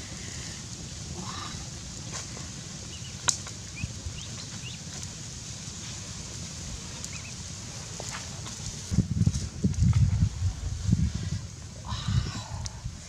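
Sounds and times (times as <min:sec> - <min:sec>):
bird chirps: 0:07.1 - 0:07.4.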